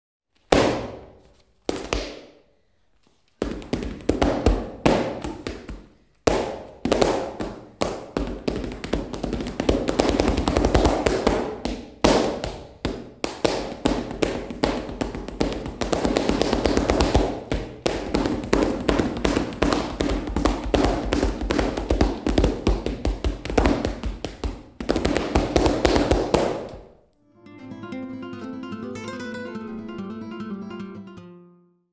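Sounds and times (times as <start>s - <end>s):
shoes stamping on practice pad: 0.5s - 2.4s, 3.4s - 27.0s.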